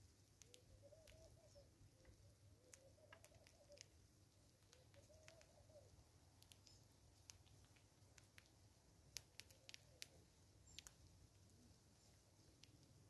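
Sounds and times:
faint clicks and ticks: 0.0 - 13.0
dove cooing: 0.5 - 3.9, 4.7 - 6.0.

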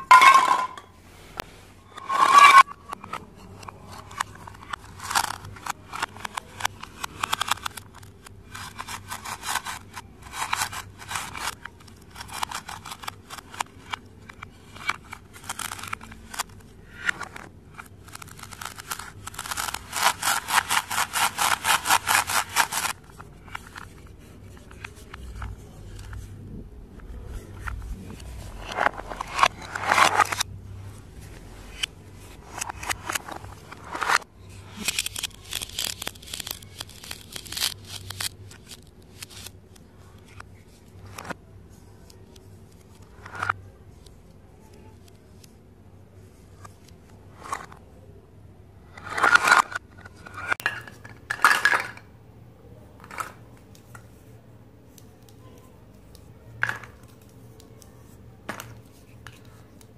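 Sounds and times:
plastic toy pieces clicking: 4.0 - 24.0, 32.6 - 39.5.

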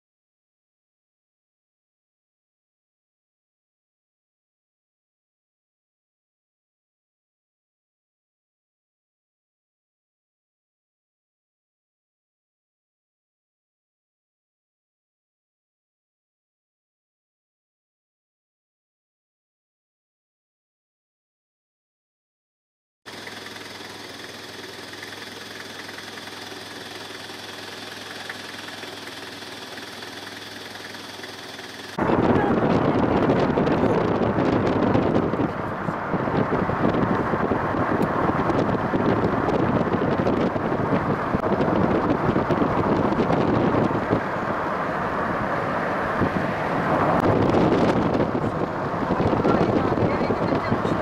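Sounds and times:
engine idling: 23.1 - 36.4
vehicle road noise: 23.1 - 51.0
wind buffeting microphone: 32.0 - 51.0.

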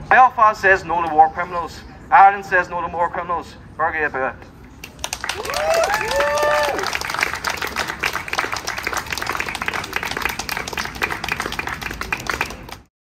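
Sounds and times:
crowd applauding: 4.8 - 12.9.

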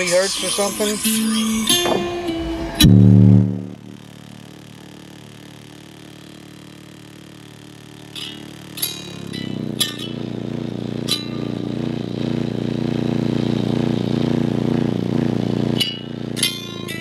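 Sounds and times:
heavy bass music in car: 0.0 - 4.2.

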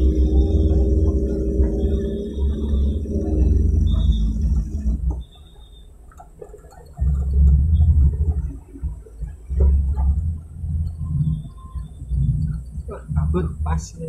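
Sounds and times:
humming tone: 0.0 - 5.3
jeep rumbling on dirt track: 0.0 - 5.3, 6.2 - 14.0.

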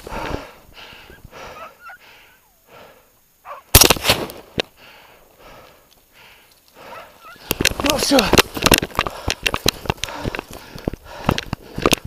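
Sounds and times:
faint breathing: 0.0 - 3.7, 4.6 - 12.0
rifle shot: 3.7 - 4.6
sharp crack: 3.7 - 4.7.

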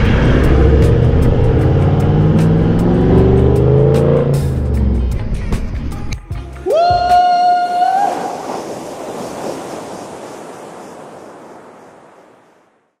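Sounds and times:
surf-like noise: 7.2 - 13.0.

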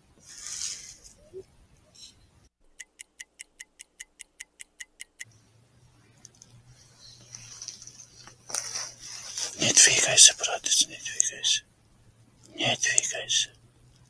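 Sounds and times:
rustling noise: 0.2 - 2.2, 6.5 - 10.2
fast clock-like ticking: 2.8 - 5.3
low steady hum: 4.4 - 14.0.

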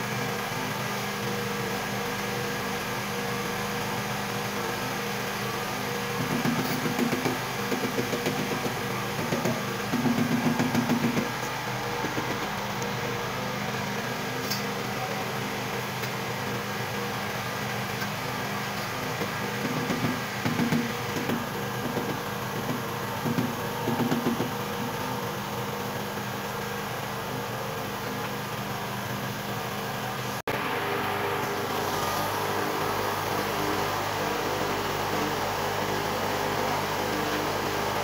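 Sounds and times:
steady mechanical hum: 0.0 - 38.0.

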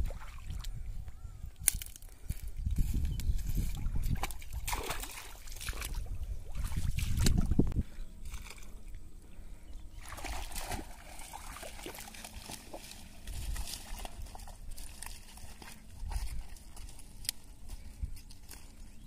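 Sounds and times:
water sloshing and splashing: 0.0 - 0.8, 3.6 - 9.0, 9.9 - 18.7.

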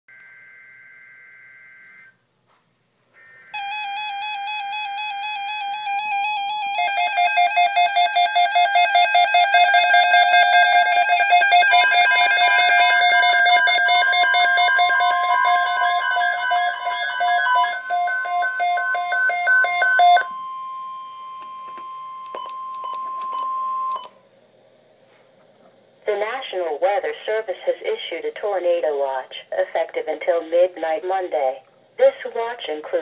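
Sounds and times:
warbling electronic alert tones: 3.6 - 20.4
data-burst screeches: 10.2 - 17.6.

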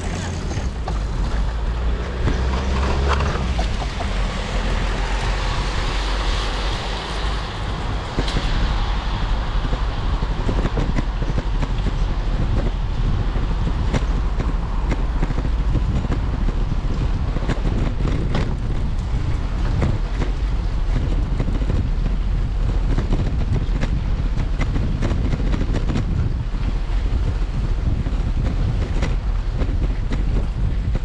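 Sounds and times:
bike rolling over brick paving: 0.0 - 4.4
wind buffeting microphone: 0.0 - 31.0.

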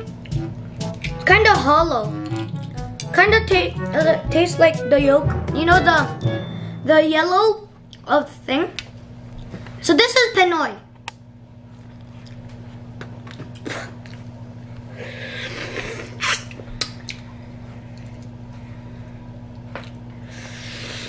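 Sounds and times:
steady low hum: 0.0 - 21.0
egg being bitten: 0.1 - 1.2, 2.2 - 3.1
eggshell crackling clicks: 2.2 - 3.1.

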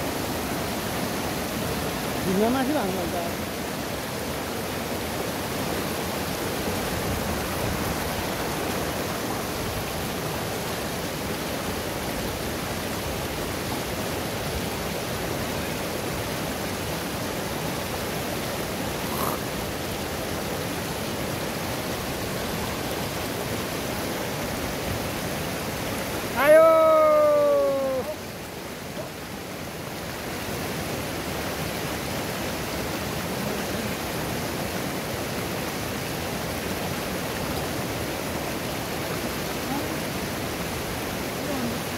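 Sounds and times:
river rushing over rapids: 0.0 - 41.9
person calling out: 26.3 - 28.2.

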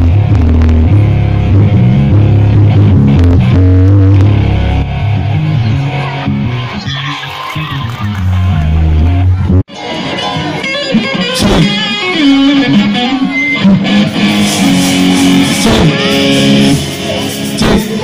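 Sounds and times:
electric guitar notes and riffs: 0.0 - 18.0.

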